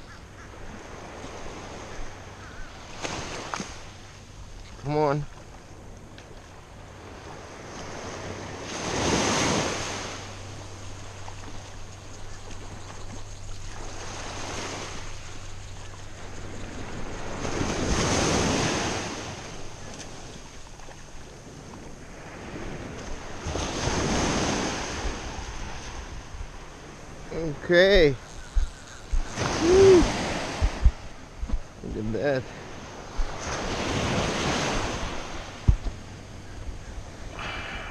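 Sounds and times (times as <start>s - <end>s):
wind on microphone: 6.7s - 37.9s
small surf breaking on beach: 7.0s - 11.8s, 12.4s - 15.4s, 16.2s - 26.2s, 29.1s - 31.0s.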